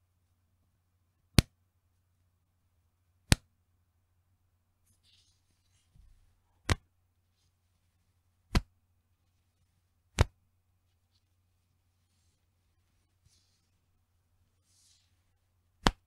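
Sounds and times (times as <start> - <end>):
elastic band snapping: 6.6 - 6.8, 8.5 - 8.7, 10.1 - 10.4, 15.8 - 16.0.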